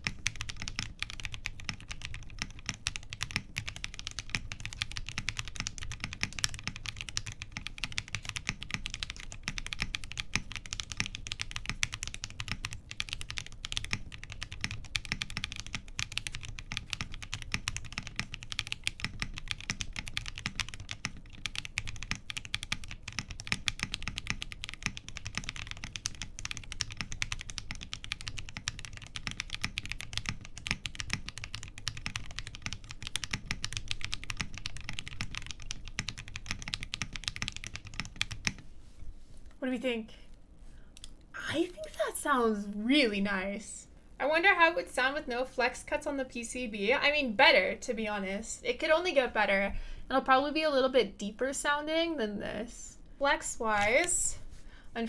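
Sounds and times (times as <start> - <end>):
mechanical keyboard typing: 0.0 - 38.7.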